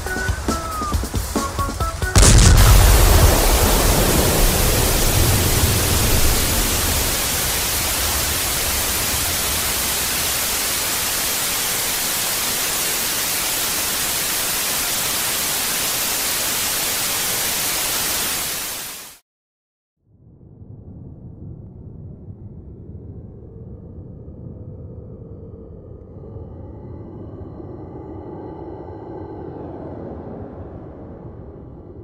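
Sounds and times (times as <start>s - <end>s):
television static hiss: 0.0s - 19.2s
low blast rumble: 2.2s - 12.2s.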